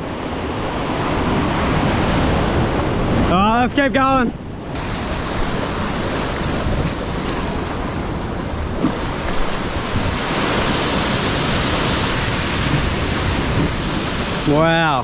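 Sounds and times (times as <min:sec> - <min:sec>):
ocean surf breaking on rocks: 0:00.0 - 0:15.0
wind buffeting microphone: 0:00.0 - 0:15.0.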